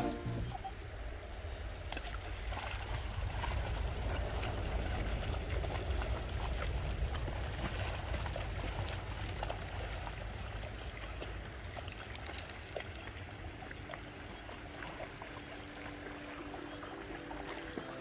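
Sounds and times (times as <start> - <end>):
faint music: 0.0 - 1.4, 9.8 - 18.0
dogs splashing in water: 2.0 - 18.0
river running over stones: 2.1 - 18.0.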